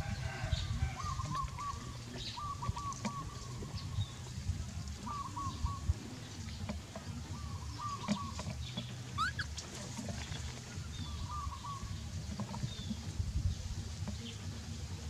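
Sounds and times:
chickens clucking: 0.0s - 15.0s
low rumble: 0.0s - 15.0s
chicken rising call: 9.1s - 9.6s.

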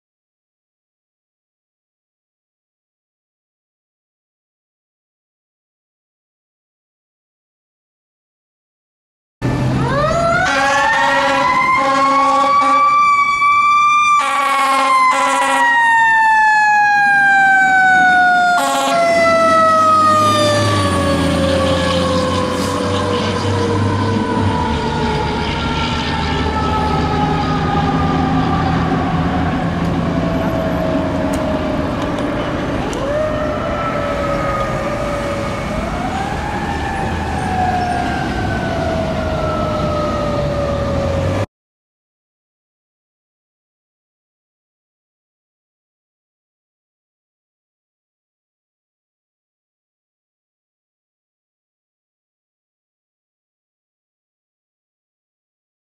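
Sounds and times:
truck engine rumbling: 9.4s - 13.6s, 17.2s - 41.5s
fire engine siren wailing: 9.4s - 41.5s
horn blasts: 10.4s - 12.9s, 14.2s - 15.8s, 18.6s - 19.2s.

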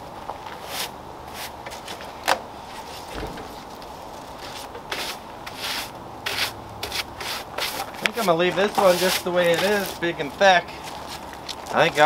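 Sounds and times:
brush scratching on wood: 4.4s - 10.1s.

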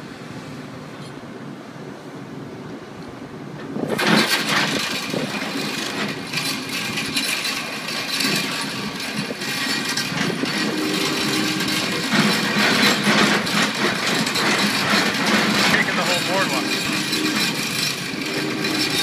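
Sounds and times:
excavator engine running: 3.7s - 19.0s
hydraulic pile driver rattling buzz: 3.9s - 19.0s.

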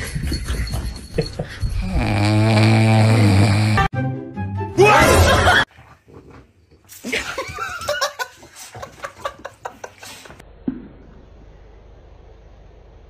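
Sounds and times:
person laughing: 1.1s - 1.7s, 5.0s - 5.7s.

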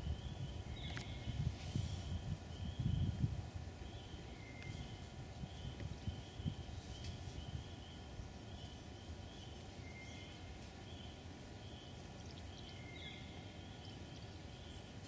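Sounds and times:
steady low rumble: 0.0s - 15.0s
faint click: 0.9s - 1.1s, 4.6s - 4.8s.

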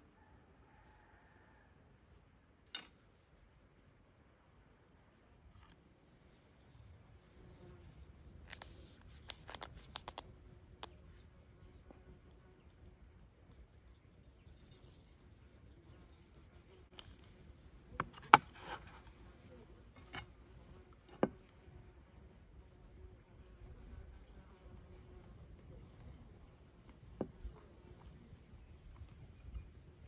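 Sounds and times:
wooden spice shaker clicking: 8.5s - 11.0s.

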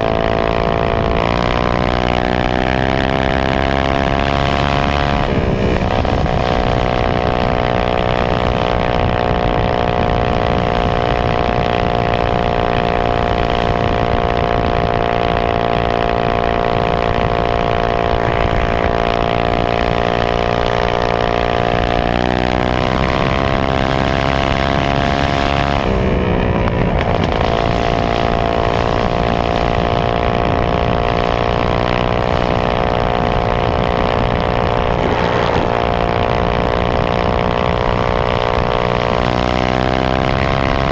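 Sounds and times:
minibike engine revving: 0.0s - 40.9s.

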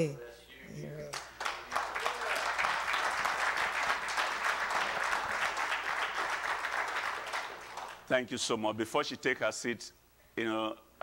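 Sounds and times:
congregation applauding: 1.1s - 8.1s.

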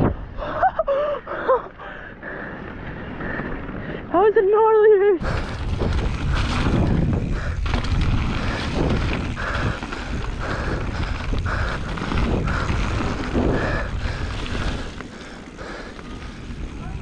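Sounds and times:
bike knocking and rattling: 2.7s - 17.0s
tyres rolling over dirt: 5.2s - 17.0s
wind rushing over microphone: 5.2s - 17.0s.

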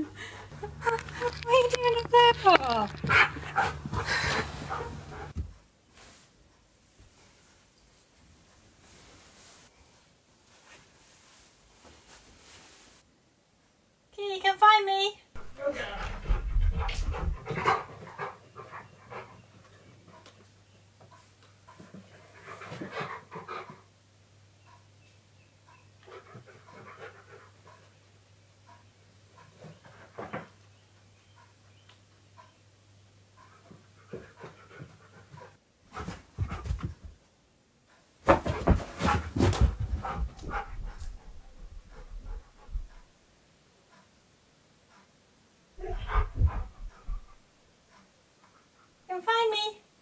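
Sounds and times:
dog panting: 0.2s - 5.4s, 15.4s - 20.4s, 21.1s - 24.0s, 25.7s - 30.6s, 32.4s - 32.6s, 33.2s - 37.0s, 37.9s - 43.2s, 45.8s - 49.1s.

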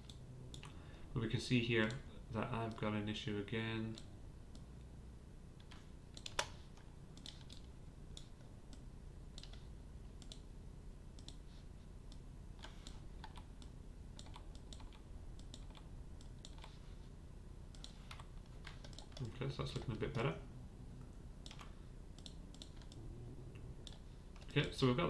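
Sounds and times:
keyboard and mouse clicking: 0.0s - 0.8s, 5.6s - 10.5s, 11.2s - 11.4s, 12.1s - 16.8s, 17.7s - 20.3s, 21.4s - 23.0s
low steady hum: 0.0s - 25.0s.

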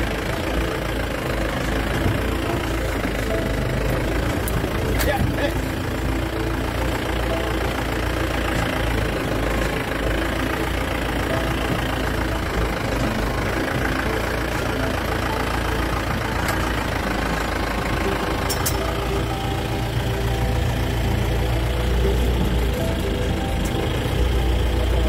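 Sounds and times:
vehicle engine idling: 0.0s - 25.0s.

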